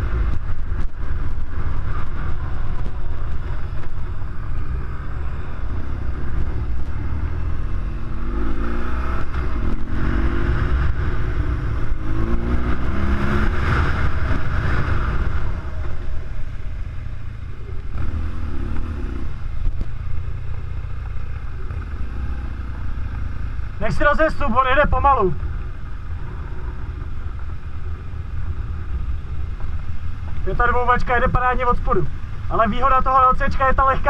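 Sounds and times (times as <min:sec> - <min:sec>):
motorcycle engine accelerating: 0:00.0 - 0:23.8
wind rumble: 0:00.0 - 0:34.0.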